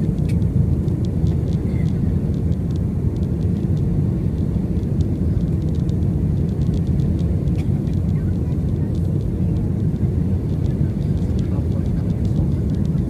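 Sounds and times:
airliner cabin engine rumble: 0.0s - 13.0s.

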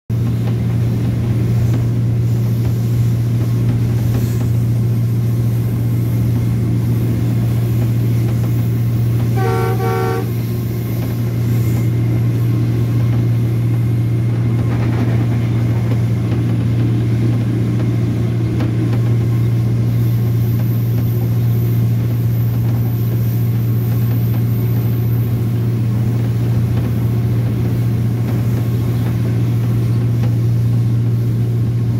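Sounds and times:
locomotive engine drone: 0.1s - 31.9s
train horn blasts: 9.2s - 10.5s.

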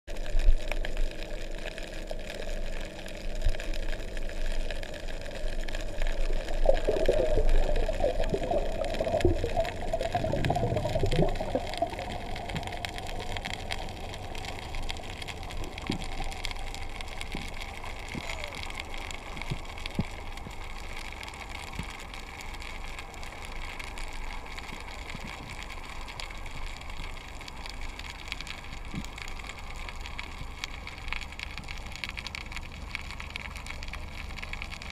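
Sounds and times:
underwater hiss and rumble: 0.1s - 34.9s
faint clicks: 0.4s - 34.9s
gurgling bubbles: 4.0s - 20.6s.

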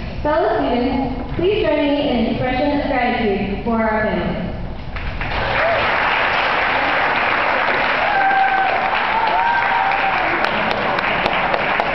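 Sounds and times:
audience applauding: 5.0s - 11.9s.

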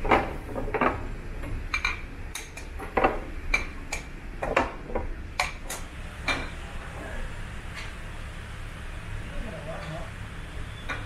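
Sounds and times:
low steady background noise: 0.0s - 11.0s.

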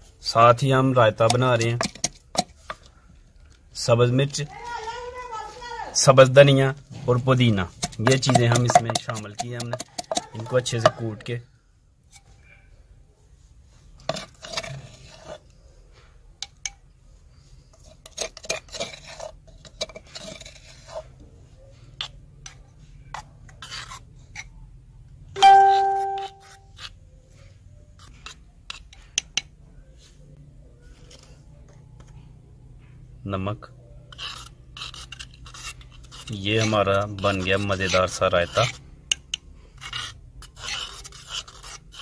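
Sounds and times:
spoon scraping and clinking: 7.7s - 11.0s, 14.0s - 15.4s, 17.8s - 21.1s, 25.4s - 26.9s.

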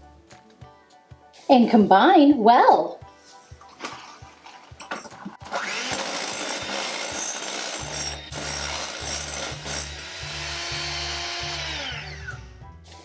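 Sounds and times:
electric hand mixer whirring: 5.5s - 12.4s.

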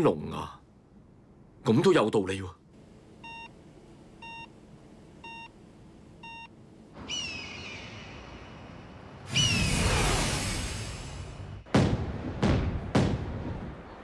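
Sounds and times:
patient monitor beeping: 3.2s - 3.6s, 4.2s - 6.6s.

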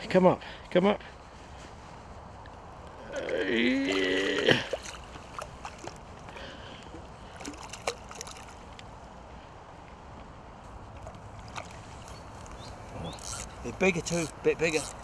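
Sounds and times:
water sloshing: 3.1s - 15.0s
fish splashing: 3.2s - 8.8s.

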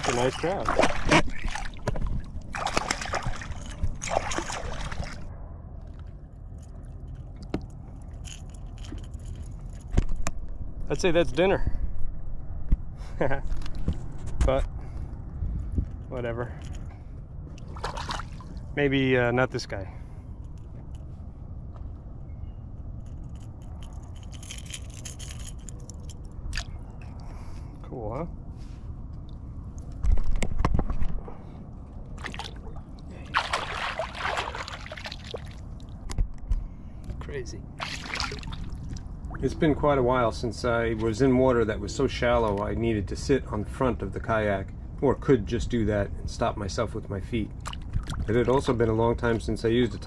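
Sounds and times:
fish splashing at water surface: 0.0s - 5.3s, 17.7s - 18.6s, 32.2s - 35.7s, 37.8s - 39.1s
low rumble: 0.0s - 17.8s
wind rumble on microphone: 0.0s - 18.8s, 20.0s - 50.0s
small clicks and rattles: 23.0s - 26.4s.

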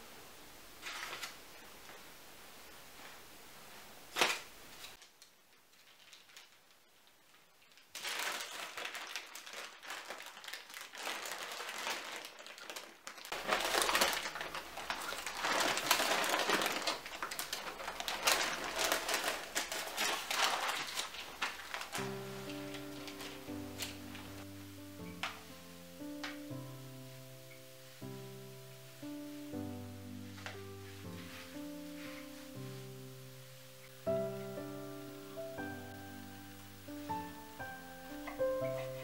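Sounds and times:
parchment paper crinkling: 0.8s - 2.0s, 4.1s - 26.4s, 30.2s - 32.9s.

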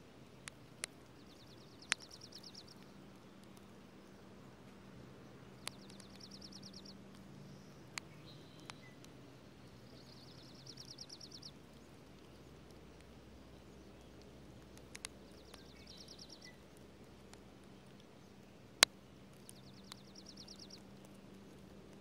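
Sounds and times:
raindrops ticking: 0.3s - 22.0s
bird trilling song: 1.2s - 4.2s, 5.2s - 12.6s, 15.0s - 16.8s, 19.3s - 21.6s.

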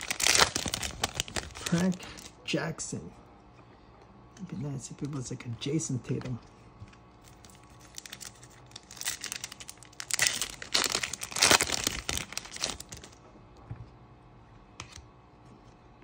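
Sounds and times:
foil wrapper crinkling and tearing: 0.0s - 2.4s, 7.2s - 13.2s.

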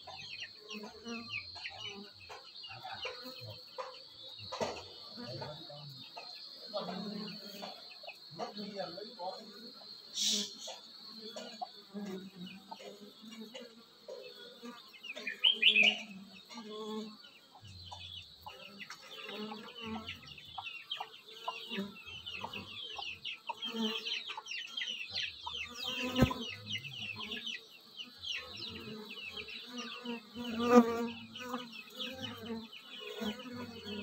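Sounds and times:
chicks peeping: 0.0s - 6.4s, 17.5s - 30.0s
chickens clucking: 0.0s - 16.6s, 17.2s - 34.0s
honeybees humming: 0.0s - 34.0s.

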